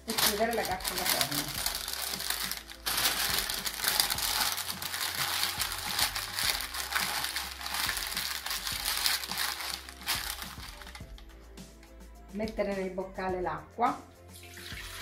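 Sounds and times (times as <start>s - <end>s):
baking parchment crinkling: 0.0s - 11.2s.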